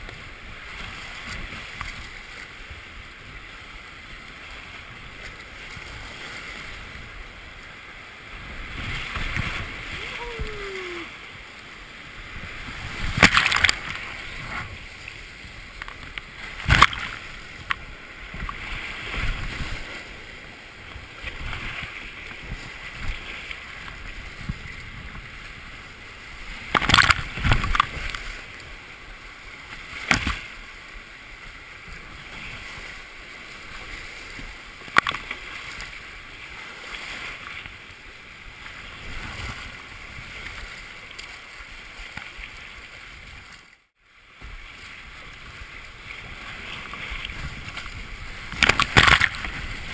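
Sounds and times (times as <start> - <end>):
water splashing over kayak: 0.0 - 49.9
whitewater rushing: 5.9 - 21.6
sharp splashes: 12.9 - 14.6.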